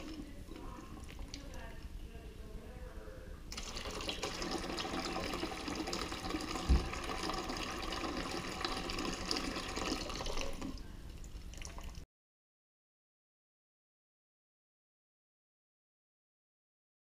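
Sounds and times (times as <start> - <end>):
water running into metal sink: 0.0 - 1.5, 3.5 - 12.0
low thump: 6.7 - 6.9.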